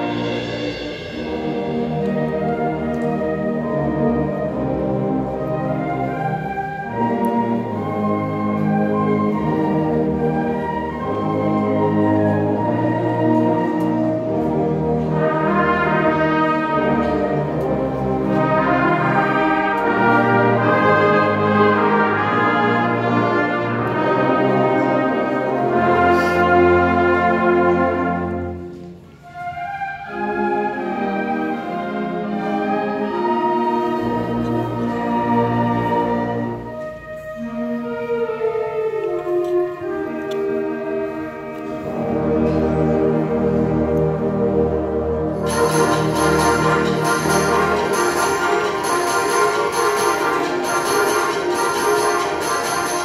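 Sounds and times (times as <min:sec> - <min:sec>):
concert band playing: 0:00.0 - 0:53.0.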